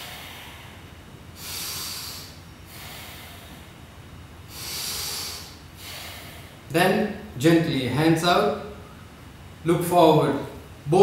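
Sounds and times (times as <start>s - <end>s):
man breathing through nose: 0.0s - 3.8s, 4.5s - 6.7s.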